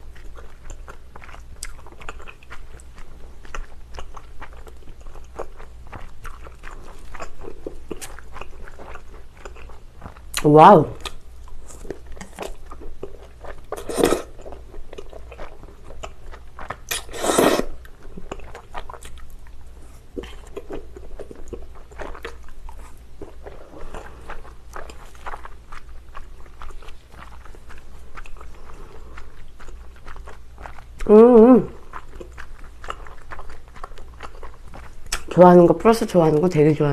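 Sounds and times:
close chewing with wet clicks: 0.0 - 17.1, 17.8 - 31.1, 31.7 - 36.6
slurps: 13.8 - 14.3, 16.9 - 17.8.

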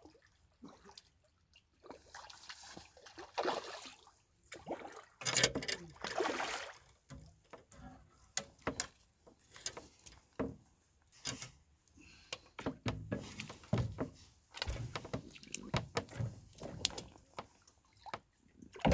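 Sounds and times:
fish splashing in water: 1.8 - 5.2, 6.0 - 6.9.

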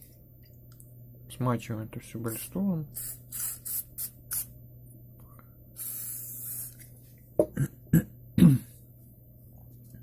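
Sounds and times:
aerosol spray hiss: 3.0 - 4.5, 5.8 - 6.8.

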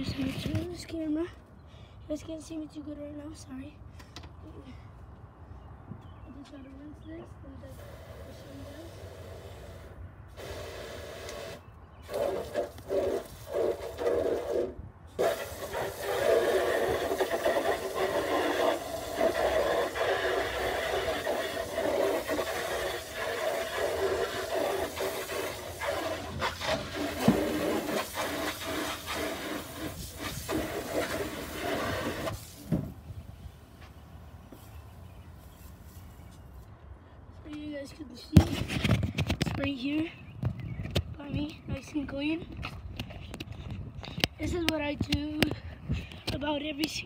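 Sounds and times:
water spraying onto tray: 10.4 - 32.8.

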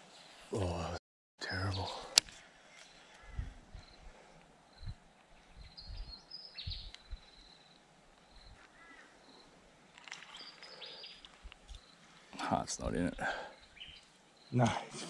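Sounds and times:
high bird chirps: 5.6 - 9.4.

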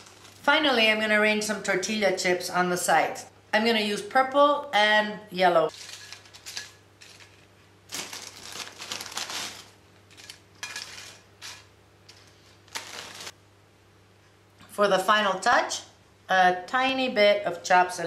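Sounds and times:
tortilla chips crackling on a plate: 5.7 - 13.4.

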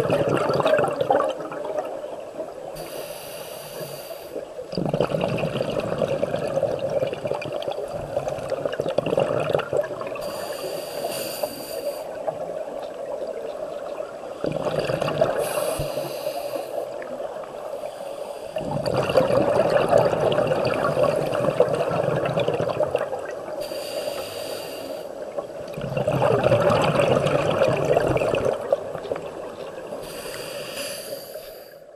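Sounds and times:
scuba regulator bubbling exhales: 0.0 - 13.4, 14.4 - 17.2, 17.9 - 31.6
regulator inhale hiss: 2.7 - 4.5, 10.2 - 12.3, 15.4 - 18.7, 23.6 - 25.2, 29.9 - 31.9.

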